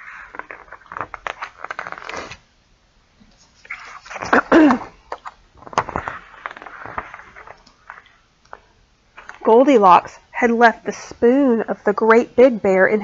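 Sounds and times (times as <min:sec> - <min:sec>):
book pages rustling: 0:00.0 - 0:02.4, 0:03.4 - 0:04.5, 0:05.1 - 0:08.2
woman sneezing: 0:04.3 - 0:05.0.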